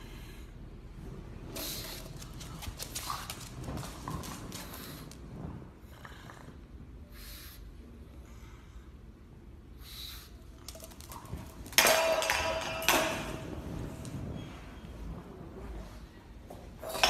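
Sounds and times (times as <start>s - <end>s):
metal bowl clanging on floor: 11.6s - 13.8s.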